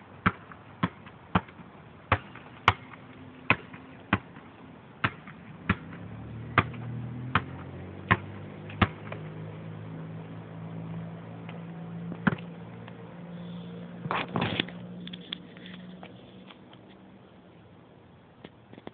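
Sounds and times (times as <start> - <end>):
basketball bouncing on asphalt: 0.0 - 14.9.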